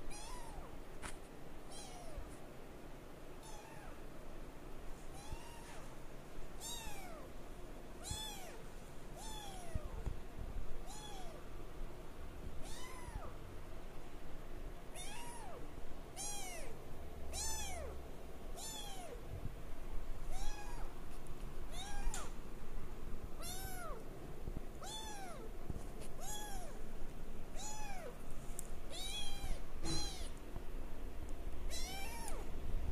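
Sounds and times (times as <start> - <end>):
kitten mewing: 0.1 - 0.7, 3.4 - 4.0, 5.2 - 5.8, 8.0 - 8.6, 10.8 - 11.4, 12.6 - 13.4, 15.0 - 15.6, 16.2 - 18.0, 20.3 - 21.0, 21.7 - 22.4, 23.4 - 24.0, 24.8 - 25.5, 26.2 - 26.8, 27.6 - 28.2, 28.9 - 30.4, 31.7 - 32.5.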